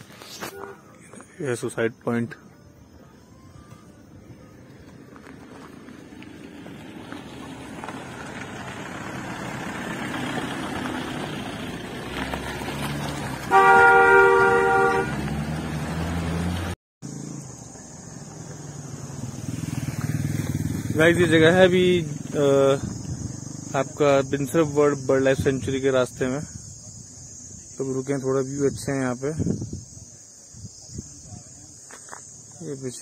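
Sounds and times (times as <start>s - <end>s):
traffic noise: 0.0s - 33.0s
vehicle engine and tyre noise: 0.0s - 33.0s
loud vehicle horn blast: 0.4s - 0.9s, 13.5s - 15.3s.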